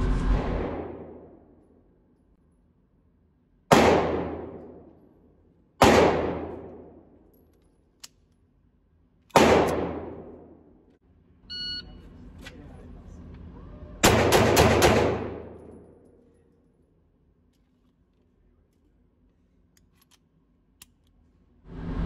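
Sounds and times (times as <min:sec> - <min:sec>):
pistol gunshots echoing: 0:03.7 - 0:04.9, 0:05.8 - 0:07.1, 0:09.3 - 0:10.6, 0:14.0 - 0:15.8.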